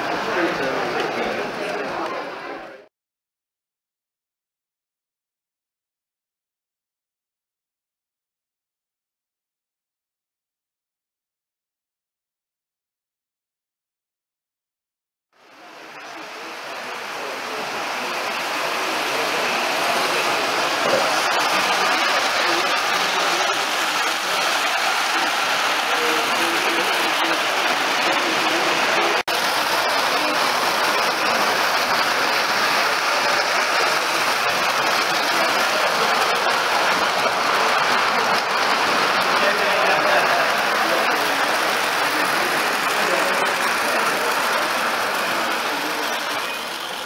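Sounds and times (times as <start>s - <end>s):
model train running on track: 0.0s - 2.8s, 15.4s - 47.0s.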